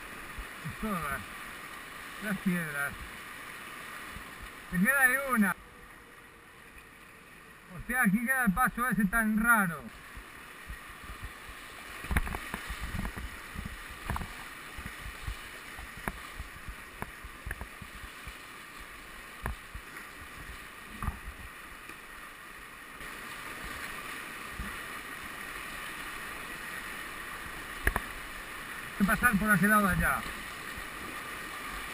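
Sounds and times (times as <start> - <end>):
paddle splashes and knocks: 10.1 - 18.5, 19.3 - 22.0, 27.8 - 28.2.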